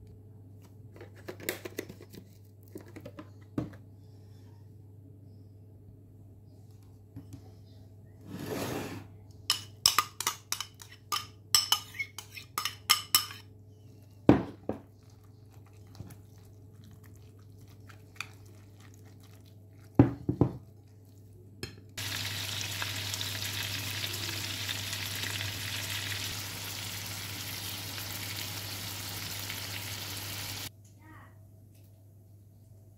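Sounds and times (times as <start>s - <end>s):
patties sizzling in frying pan: 22.0s - 30.7s.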